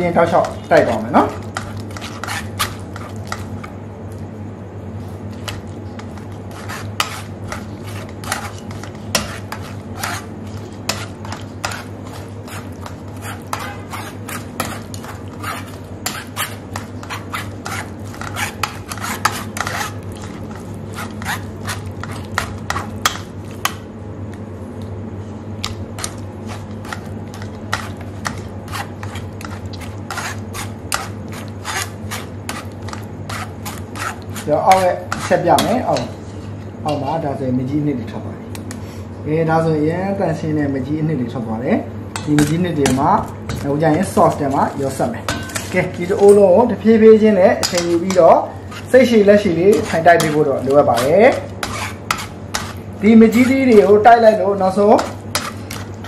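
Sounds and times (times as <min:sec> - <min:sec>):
metal ladle scraping strainer: 0:47.6 - 0:54.0.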